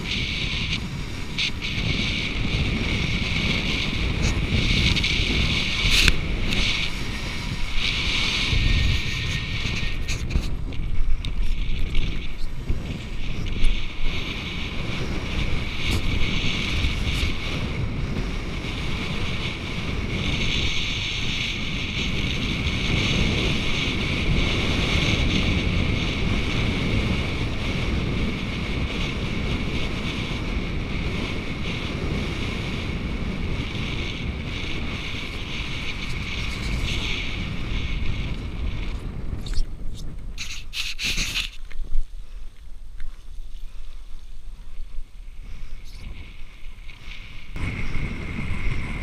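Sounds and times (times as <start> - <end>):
water hissing past kiteboard: 0.0 - 10.7, 31.9 - 41.6
wind rumbling on microphone: 0.0 - 49.0.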